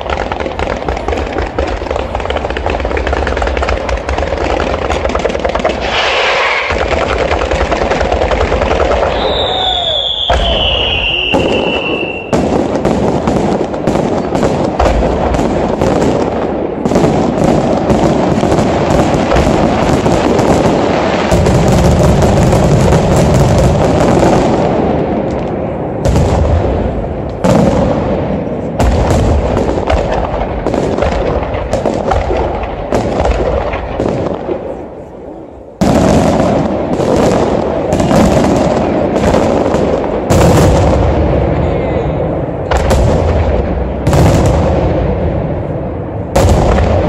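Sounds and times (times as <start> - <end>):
firework shells bursting: 0.0 - 17.1
firework whistle falling in pitch: 9.1 - 12.4.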